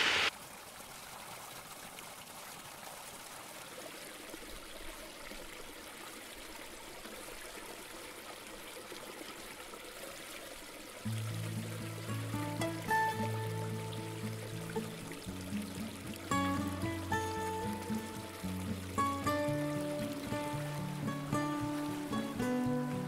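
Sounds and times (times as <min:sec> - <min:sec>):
faint water trickling among rocks: 0:00.3 - 0:23.0.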